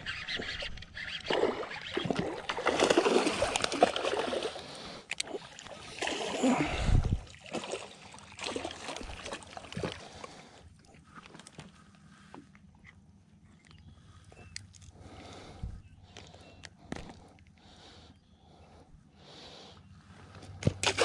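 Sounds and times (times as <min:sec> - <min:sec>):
water splashing: 0:00.0 - 0:10.2, 0:20.7 - 0:21.0.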